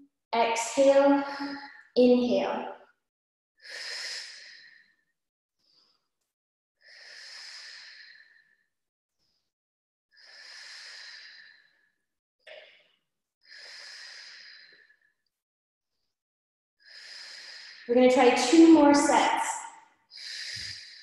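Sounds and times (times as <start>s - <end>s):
woman breathing heavily: 0.9s - 1.9s, 3.6s - 5.0s, 6.8s - 8.5s, 10.2s - 11.8s, 13.5s - 15.0s, 16.8s - 17.9s, 20.2s - 21.0s.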